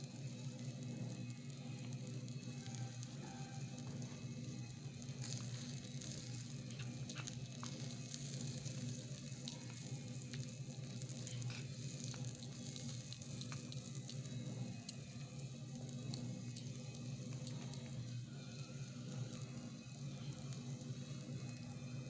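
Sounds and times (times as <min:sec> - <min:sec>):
vegetables sizzling in wok: 0:00.0 - 0:22.0.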